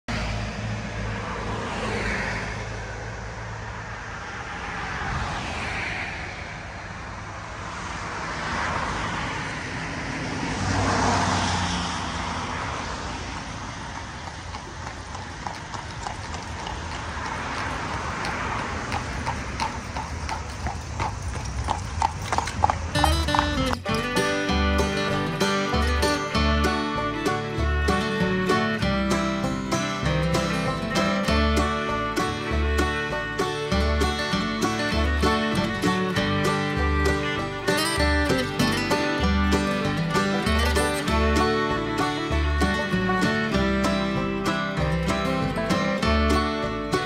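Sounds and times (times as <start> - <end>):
cars passing: 0.0 - 47.0
horse hooves clip-clopping on pavement: 13.0 - 47.0.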